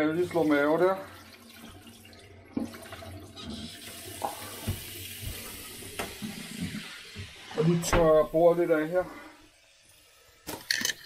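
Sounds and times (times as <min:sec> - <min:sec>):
tap running onto dishes: 0:01.5 - 0:07.4.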